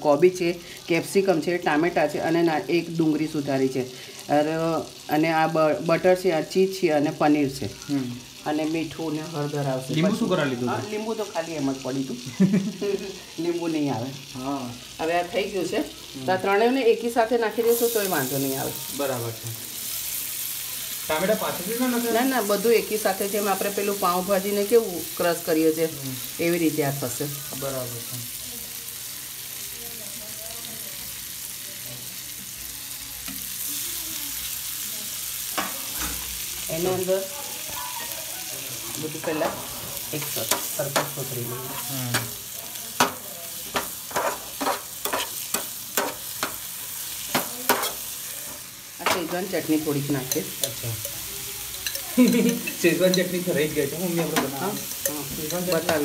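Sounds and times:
vegetables sizzling in a pan: 0.0s - 56.0s
spatula tapping and scraping pan: 39.2s - 41.2s, 43.0s - 46.7s, 47.3s - 49.4s, 54.1s - 56.0s.

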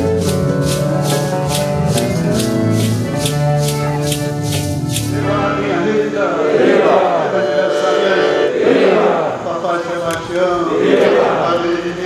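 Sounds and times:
maracas shaken: 0.0s - 5.9s
accordion: 0.0s - 9.0s
crowd singing and calling out: 0.0s - 12.0s.

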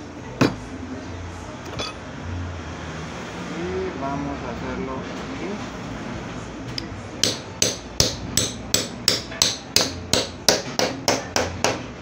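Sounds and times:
hammer striking metal punch: 7.2s - 11.8s.

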